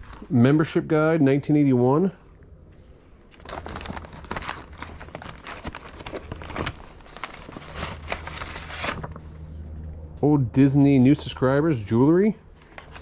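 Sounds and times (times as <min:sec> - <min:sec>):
paper rustling and crinkling: 0:02.8 - 0:09.4, 0:12.6 - 0:13.0.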